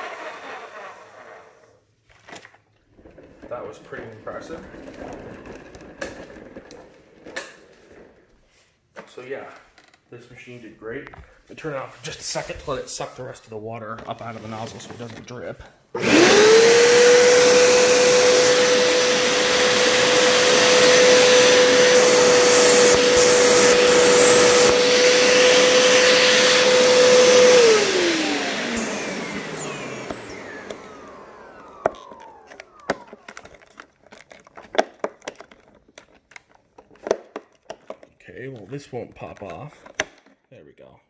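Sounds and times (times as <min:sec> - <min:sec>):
carpet cleaner motor whining: 0:02.9 - 0:08.2, 0:16.0 - 0:37.2
plastic clicks and knocks: 0:31.8 - 0:38.2, 0:39.1 - 0:40.5.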